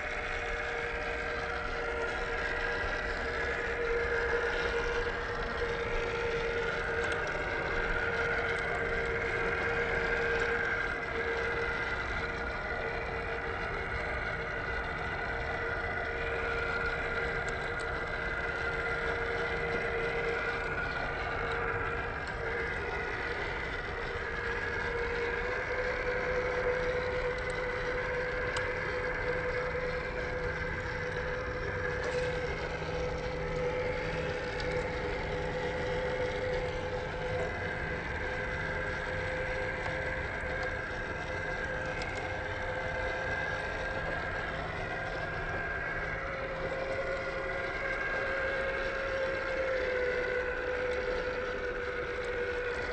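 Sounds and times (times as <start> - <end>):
electric motor and gearbox whining: 0.0 - 52.9.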